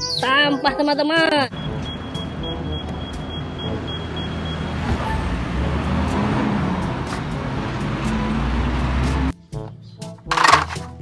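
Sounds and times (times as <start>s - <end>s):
street traffic: 1.2s - 9.4s, 10.3s - 11.0s
truck diesel engine passing: 1.5s - 9.3s.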